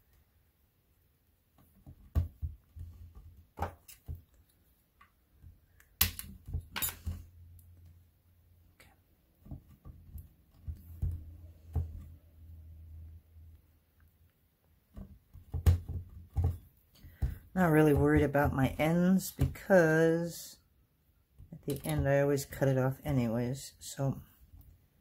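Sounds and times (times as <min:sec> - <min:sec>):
knocks and clicks of craft tools: 0:14.9 - 0:19.6.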